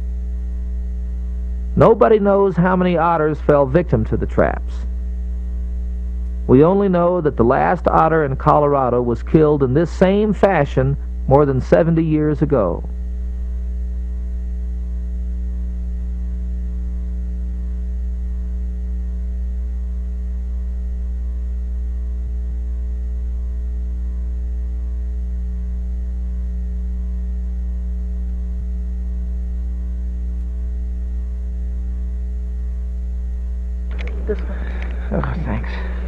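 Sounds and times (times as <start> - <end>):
low electrical hum: 0.0 - 36.0.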